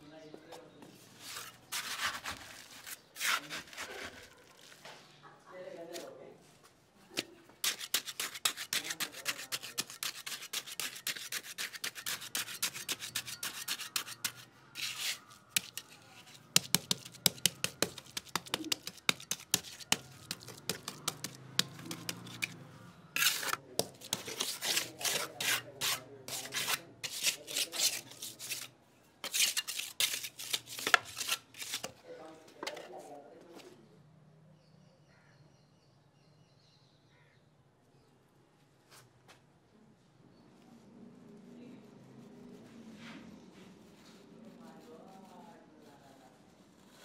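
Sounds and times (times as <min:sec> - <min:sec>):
trowel scraping wet mortar: 0:01.2 - 0:04.8, 0:07.2 - 0:32.0.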